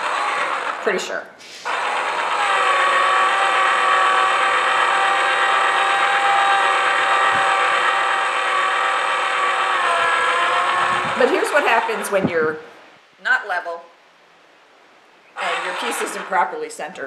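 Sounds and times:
small electric motor whining: 0.0 - 12.4, 15.4 - 16.5.

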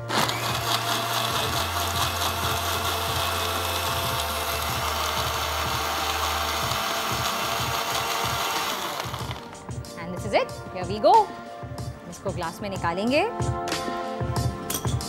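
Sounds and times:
blender running: 0.0 - 9.6.

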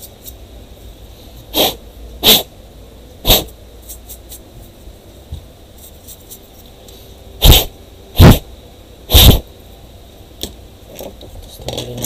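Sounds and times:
sharp puffs of air: 1.2 - 2.5, 3.2 - 3.6, 7.0 - 8.5, 9.1 - 9.5.

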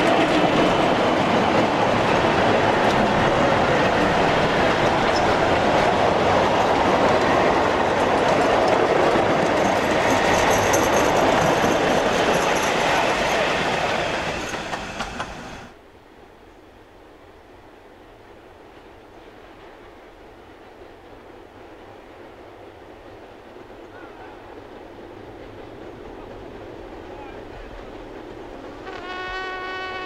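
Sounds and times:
rail joints clicking: 0.0 - 15.8
train wheels rumbling on rails: 0.0 - 15.8, 17.9 - 30.0.

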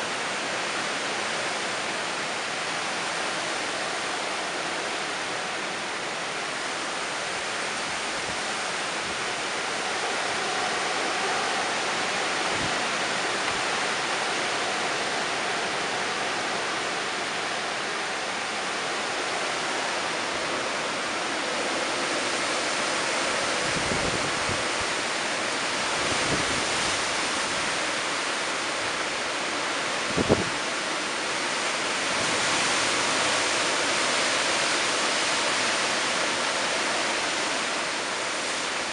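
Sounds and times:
heavy wind-driven rain: 0.0 - 38.9
wind through trees: 0.0 - 38.9.

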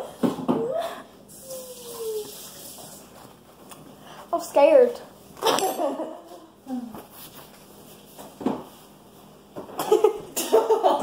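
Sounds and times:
paper towel crinkling: 6.9 - 9.5.

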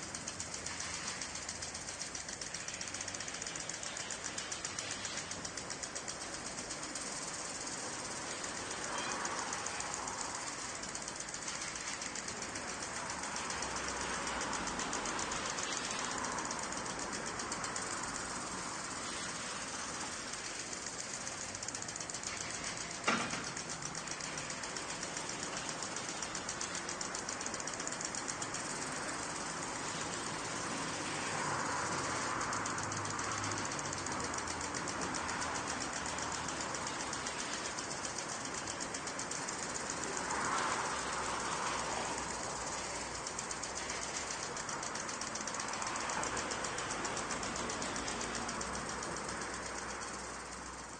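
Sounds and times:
sharp click: 0.0 - 50.8
sprinkler spraying water: 0.0 - 50.9
sprinkler ticking: 0.0 - 50.9.

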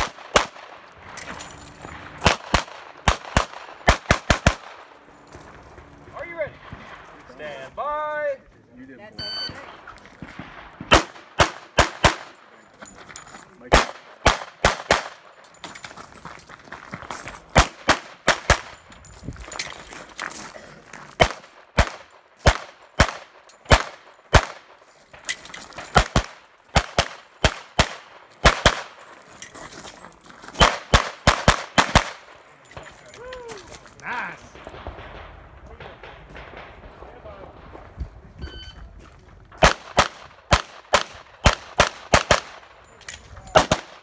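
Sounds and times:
pistol shots with echo: 0.0 - 0.9, 2.2 - 4.9, 9.6 - 12.5, 13.7 - 15.4, 21.2 - 24.7, 25.9 - 29.0, 30.6 - 32.5, 34.5 - 37.8, 39.6 - 42.8, 43.5 - 44.0.

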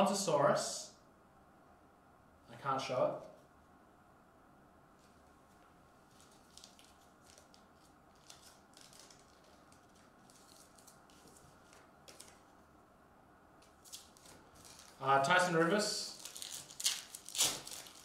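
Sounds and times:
trading cards rustling: 6.0 - 12.6, 13.6 - 15.1.

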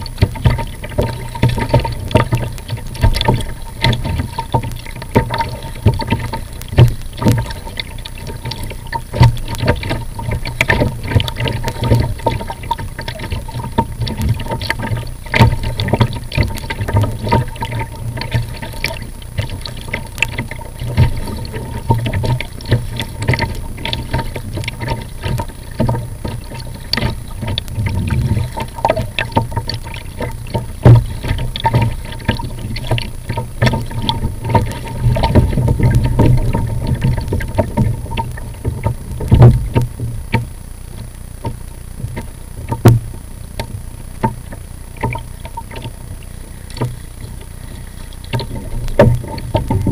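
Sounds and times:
paddle blades dipping in water: 0.0 - 49.9
water slapping against kayak hull: 0.0 - 49.9
low rumble: 27.2 - 29.6.

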